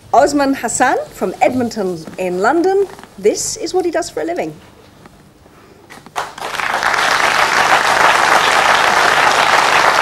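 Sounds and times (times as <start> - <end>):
audience applauding: 6.2 - 10.0.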